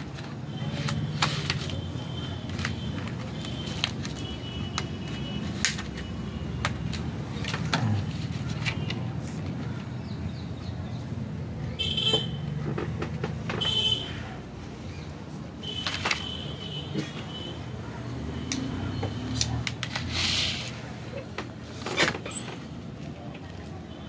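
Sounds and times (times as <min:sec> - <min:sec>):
squeaky plastic scrapes: 0:21.7 - 0:22.8.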